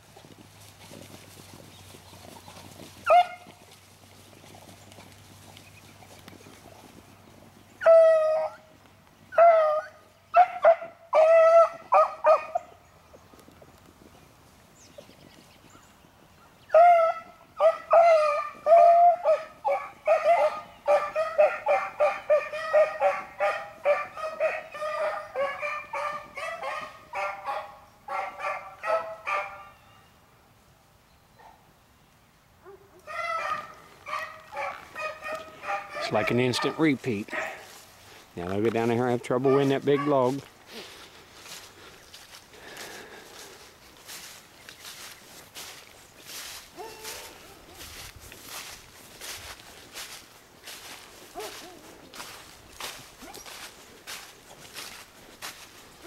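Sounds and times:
hounds baying: 0:03.0 - 0:03.6, 0:07.8 - 0:08.7, 0:09.3 - 0:12.8, 0:16.7 - 0:29.8, 0:32.6 - 0:38.2, 0:39.2 - 0:43.6, 0:46.4 - 0:56.0.

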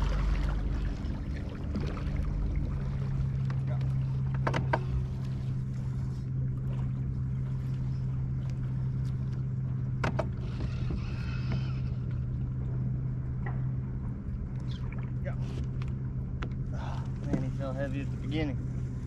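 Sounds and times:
small electric motor humming: 0:10.1 - 0:12.4.

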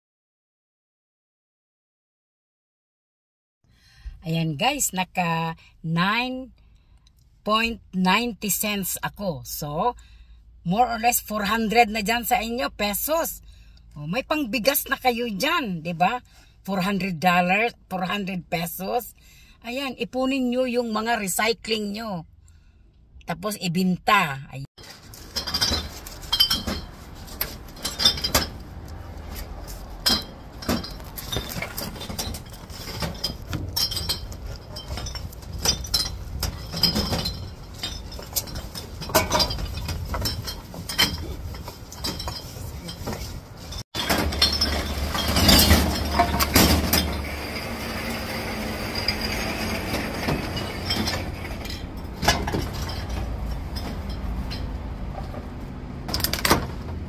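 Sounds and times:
cans and bottles clattering: 0:24.8 - 0:28.8, 0:29.9 - 0:55.2.

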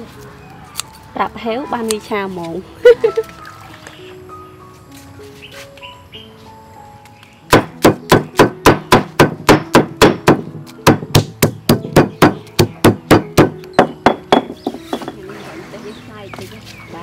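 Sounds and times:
faint background music: 0:00.0 - 0:17.0
chopping on cutting board: 0:07.5 - 0:15.1.

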